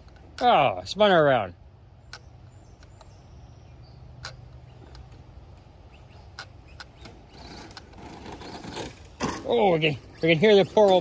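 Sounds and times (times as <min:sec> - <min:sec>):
rc car rattling over dirt: 0:06.3 - 0:11.0.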